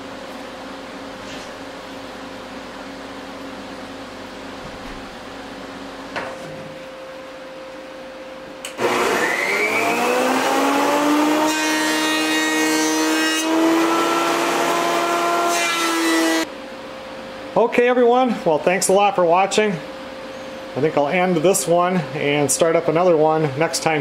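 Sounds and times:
power tool sanding wood: 0:08.8 - 0:16.5.

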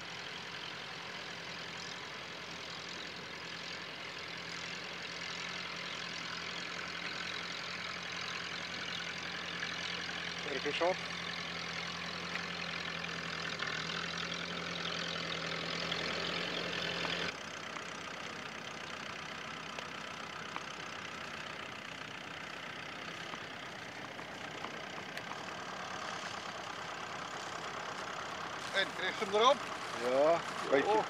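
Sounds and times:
tractor engines running: 0:00.0 - 0:31.0.

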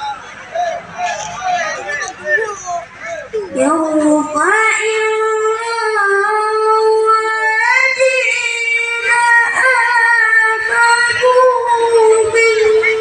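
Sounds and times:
boy chanting into a microphone: 0:03.1 - 0:13.0.

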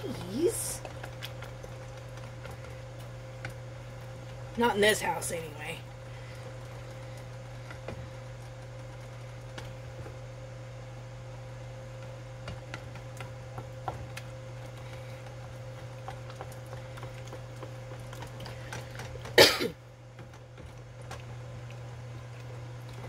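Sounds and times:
steady low hum: 0:00.0 - 0:23.0
person coughing: 0:19.4 - 0:19.8.

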